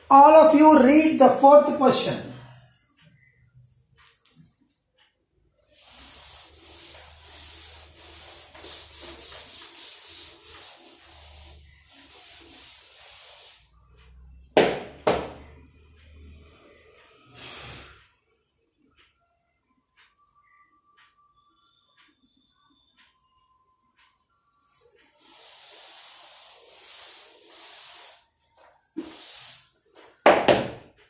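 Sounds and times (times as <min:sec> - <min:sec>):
rubbing or scraping strokes: 0:05.7 - 0:14.2, 0:25.0 - 0:30.1
sharp knocks: 0:14.6 - 0:15.4.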